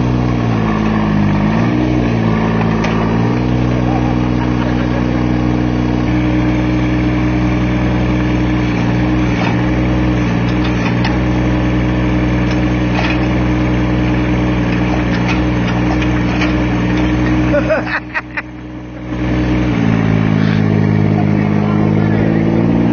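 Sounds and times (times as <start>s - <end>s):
excavator engine running: 0.0s - 22.9s.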